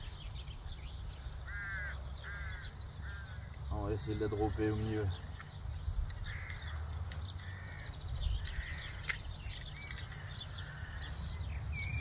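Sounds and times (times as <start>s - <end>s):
crows cawing: 1.4s - 4.9s, 6.1s - 9.4s, 10.0s - 11.6s.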